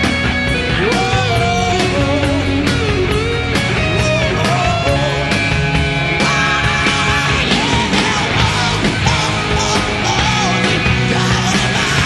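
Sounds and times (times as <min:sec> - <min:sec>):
bass guitar: 0:00.0 - 0:12.0
distorted electric lead guitar: 0:00.0 - 0:12.0
drums: 0:00.0 - 0:12.0.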